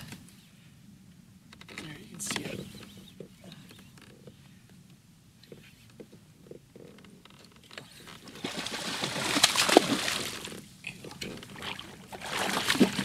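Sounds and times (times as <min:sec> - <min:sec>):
fish thrashing and splashing in water: 0:08.2 - 0:13.0.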